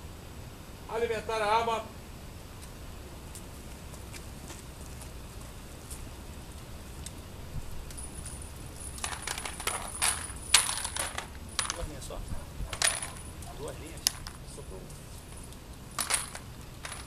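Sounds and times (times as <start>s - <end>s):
metal cartridges clinking: 7.9s - 17.0s.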